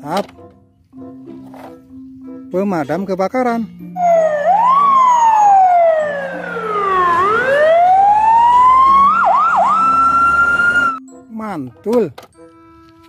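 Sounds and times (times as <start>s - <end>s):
fire engine siren wailing: 4.0s - 11.0s.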